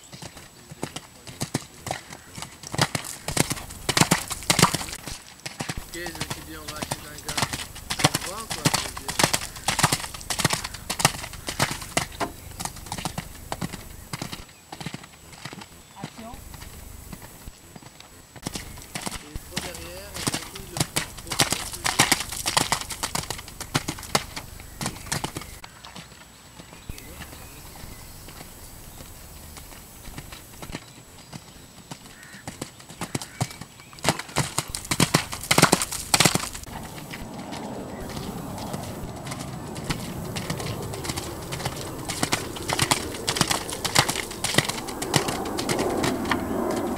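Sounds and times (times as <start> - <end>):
horse hoofbeats on wet sand: 0.0 - 46.9.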